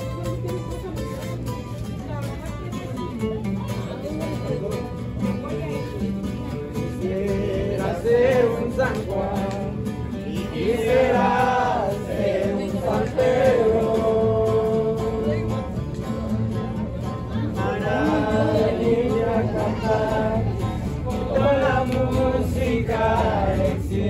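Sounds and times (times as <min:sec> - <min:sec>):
acoustic guitar strumming: 0:00.0 - 0:24.0.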